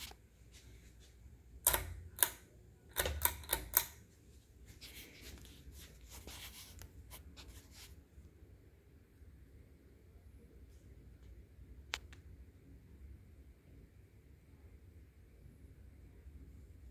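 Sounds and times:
fan pull chain clicking: 1.6 - 4.0.

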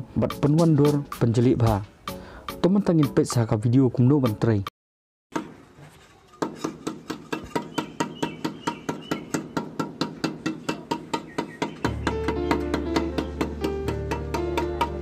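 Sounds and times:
trowel scraping cement plaster: 5.4 - 8.0.

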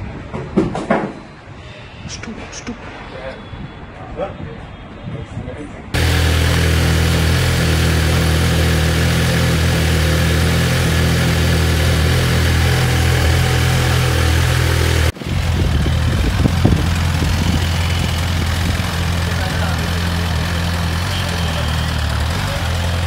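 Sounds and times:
motorcycle engine idling: 6.0 - 23.0.

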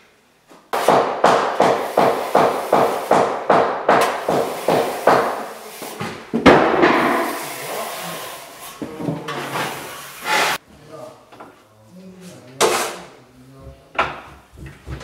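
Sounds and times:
knocking on a wall: 13.9 - 15.0.

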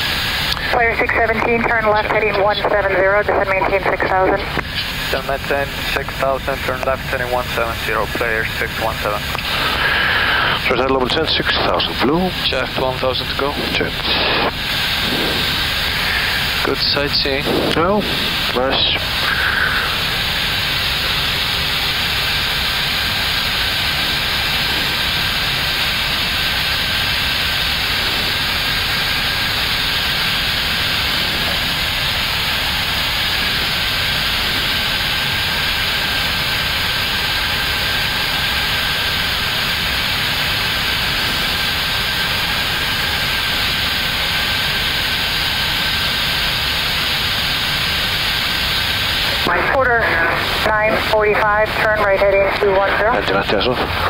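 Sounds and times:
cockpit rushing noise: 12.7 - 36.6.

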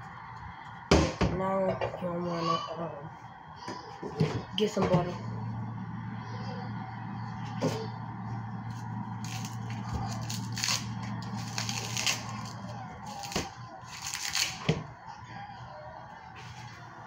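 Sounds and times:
low steady hum: 0.0 - 17.0
paper wrapper crinkling and tearing: 8.7 - 14.6.

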